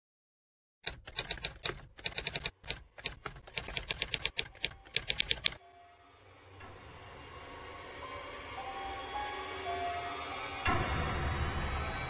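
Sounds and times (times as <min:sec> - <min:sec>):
typewriter keys clacking: 0:00.8 - 0:05.6.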